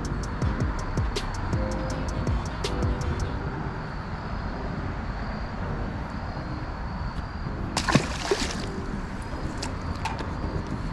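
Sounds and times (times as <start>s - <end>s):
fish splashing into water: 7.8s - 8.9s.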